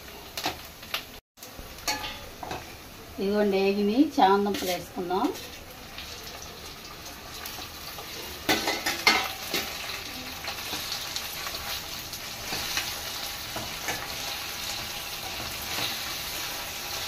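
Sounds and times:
vegetables sizzling in oil: 0.0 - 17.0
sharp metal clanks: 1.8 - 2.6.

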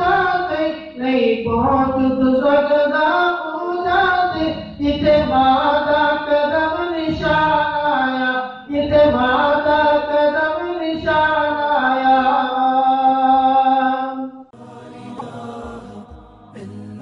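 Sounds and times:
man chanting unaccompanied: 14.6 - 17.0
quiet music: 14.6 - 17.0.

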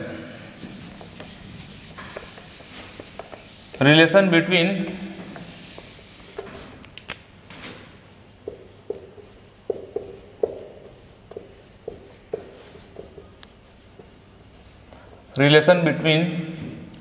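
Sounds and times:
marker squeaking on whiteboard: 0.6 - 3.8, 5.4 - 6.7, 7.9 - 15.4.

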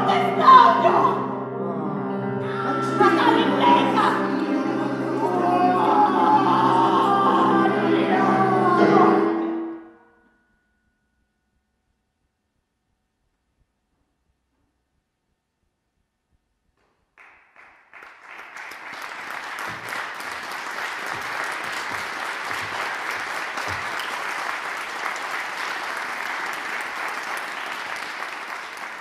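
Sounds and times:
audience applause: 17.2 - 29.0.

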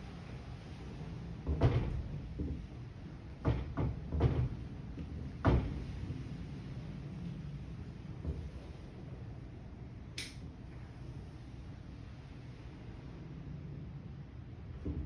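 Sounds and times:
knocking on wooden door: 3.4 - 4.6.

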